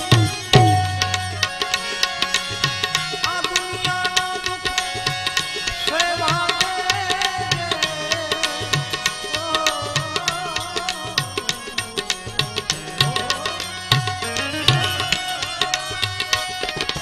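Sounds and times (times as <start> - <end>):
harmonium chords: 0.0 - 17.0
percussion beat: 0.0 - 17.0
man singing: 2.9 - 16.0.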